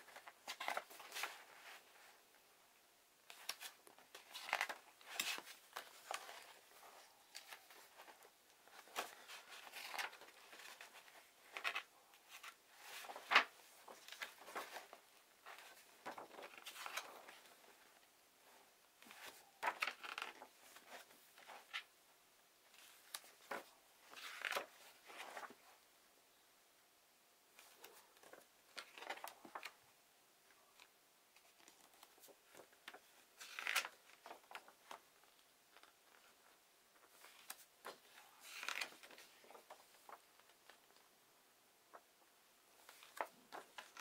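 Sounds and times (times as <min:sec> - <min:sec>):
paper pages turning: 0:00.0 - 0:02.1, 0:03.2 - 0:17.9, 0:19.0 - 0:21.9, 0:22.8 - 0:25.6, 0:30.8 - 0:36.4, 0:37.1 - 0:40.9, 0:42.8 - 0:44.0.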